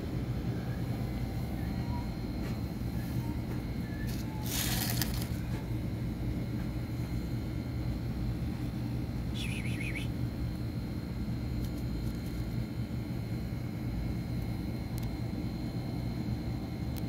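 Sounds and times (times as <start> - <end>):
faint constant whine: 0.0 - 17.0
high wavering chirp: 9.3 - 10.2.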